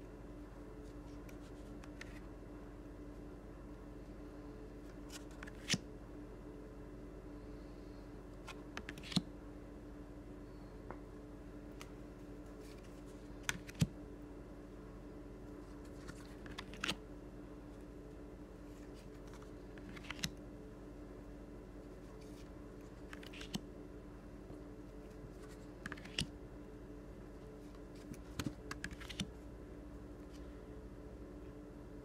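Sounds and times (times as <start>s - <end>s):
faint steady hum: 0.0s - 32.0s
cards flipped onto a pile: 1.2s - 2.2s, 5.0s - 5.8s, 8.4s - 9.2s, 12.6s - 13.9s, 15.8s - 17.0s, 19.0s - 20.4s, 22.2s - 23.6s, 25.4s - 26.3s, 28.0s - 29.3s.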